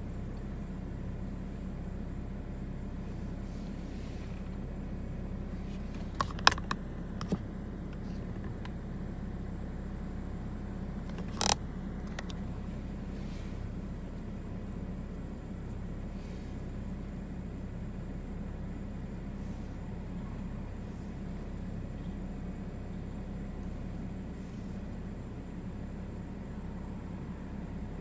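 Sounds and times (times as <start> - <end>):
low urban hum: 0.0 - 28.0.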